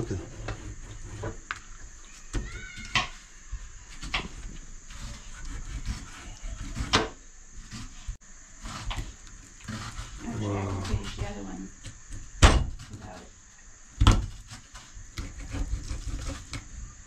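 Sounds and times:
knife scraping fish scales: 3.9s - 11.9s, 14.2s - 16.7s.

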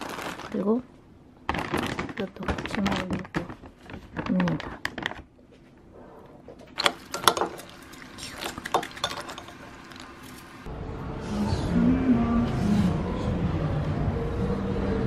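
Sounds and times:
spoon clinking on ceramic bowl: 8.7s - 9.6s.

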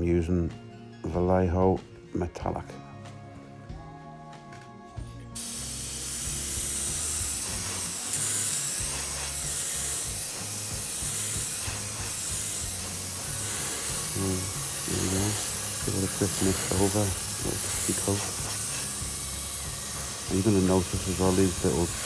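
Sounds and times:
airbrush hissing: 5.4s - 22.0s.

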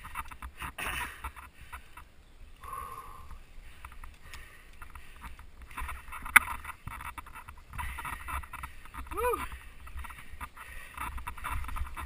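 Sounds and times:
bike rattling: 0.0s - 12.0s
bike tyres on dirt: 0.0s - 12.0s
wind rumble on microphone: 4.8s - 12.0s.

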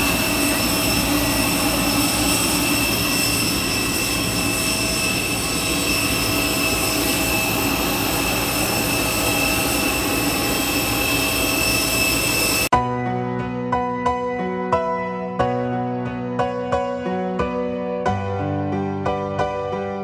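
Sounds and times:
jet turbine whine: 0.0s - 12.7s.

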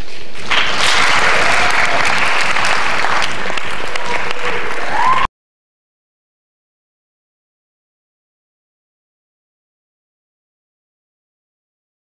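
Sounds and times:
audience applauding: 0.4s - 5.3s.

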